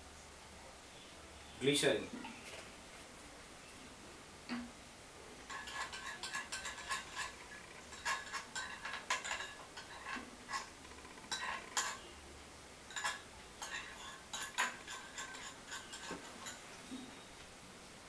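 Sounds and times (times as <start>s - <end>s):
spoon clinking against glass bowl: 5.5s - 7.3s, 11.3s - 12.1s, 12.9s - 16.6s.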